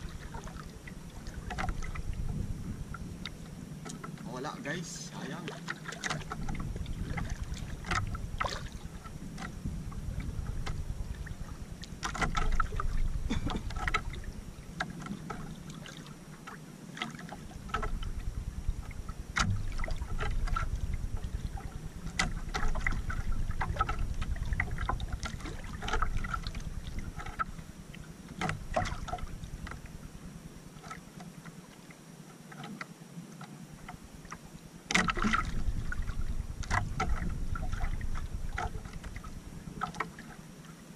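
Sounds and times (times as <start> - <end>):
low rumble: 0.0 - 3.8
water lapping against hull: 0.0 - 40.9.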